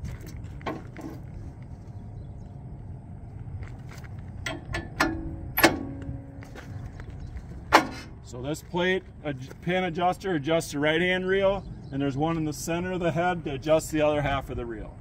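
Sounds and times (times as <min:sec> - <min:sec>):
steady low rumble: 0:00.0 - 0:15.0
metal clicks and clunks: 0:04.4 - 0:06.6, 0:07.6 - 0:08.2.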